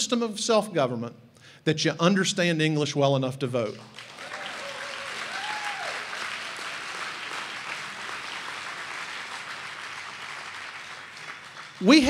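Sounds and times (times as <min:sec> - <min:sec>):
audience applauding: 0:03.7 - 0:12.0.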